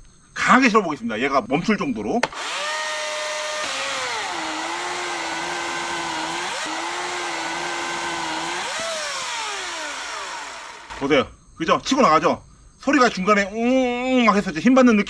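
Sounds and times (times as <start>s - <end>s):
chainsaw cutting log: 2.2s - 11.1s.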